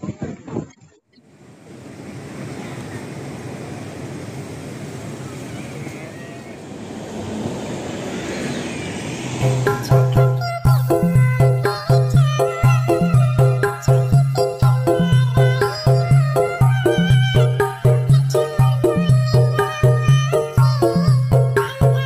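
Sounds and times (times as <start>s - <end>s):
city street traffic: 4.0s - 10.7s.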